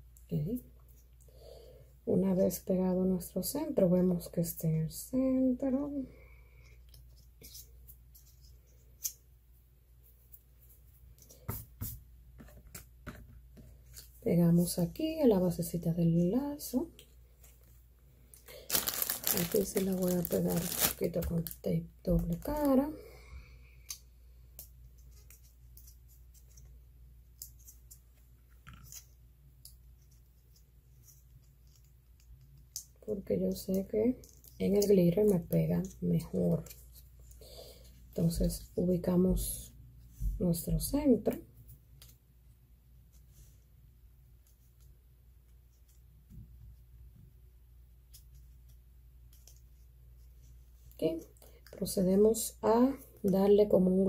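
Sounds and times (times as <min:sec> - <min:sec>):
low steady hum: 0:00.0 - 0:54.0
paper clicks and crinkles: 0:18.4 - 0:22.8.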